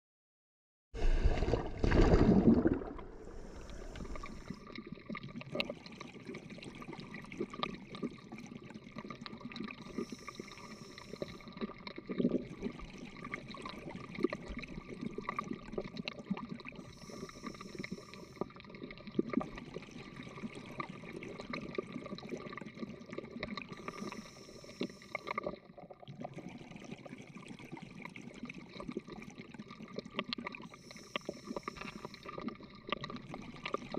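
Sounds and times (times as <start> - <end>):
hissing bubbling rush: 1.0 - 4.7
crackle of reef clicks: 2.6 - 27.1, 27.8 - 33.9.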